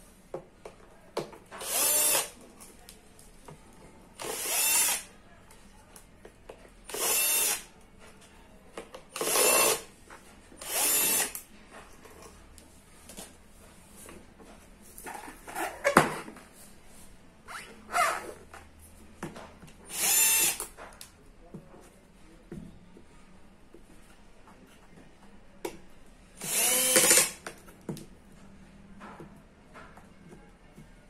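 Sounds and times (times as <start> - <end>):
cordless drill spinning: 1.6 - 2.4, 4.2 - 5.1, 6.9 - 7.7, 9.2 - 9.9, 10.6 - 11.4, 19.9 - 20.6, 26.4 - 27.4.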